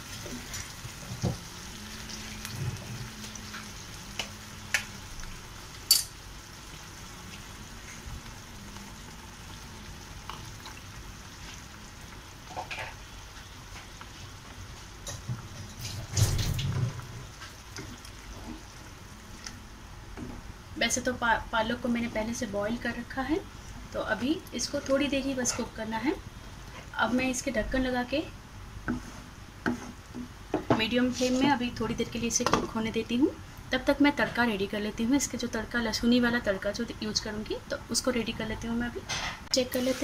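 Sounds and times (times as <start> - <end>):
gravy simmering and sizzling: 0.0 - 32.0.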